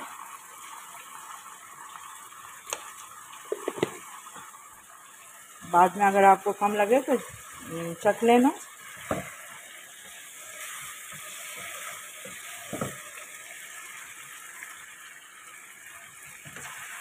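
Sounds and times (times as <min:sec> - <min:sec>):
chicken sizzling in hot oil: 0:00.0 - 0:17.0
wooden spatula knocking pan: 0:03.5 - 0:04.0, 0:09.0 - 0:09.4, 0:11.1 - 0:13.1.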